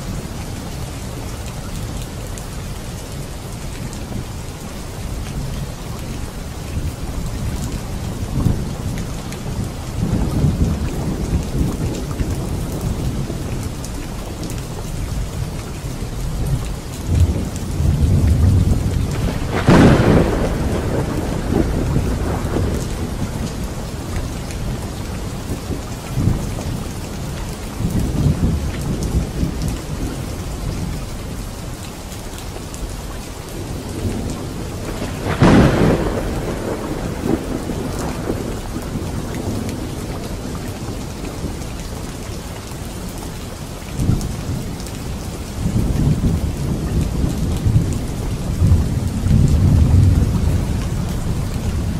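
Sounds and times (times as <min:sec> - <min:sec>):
heavy rain: 0:00.0 - 0:51.9
thunder rumbling: 0:16.3 - 0:30.9, 0:33.5 - 0:42.3, 0:44.0 - 0:51.9
sharp thunderclap: 0:17.1 - 0:23.7, 0:34.0 - 0:39.9.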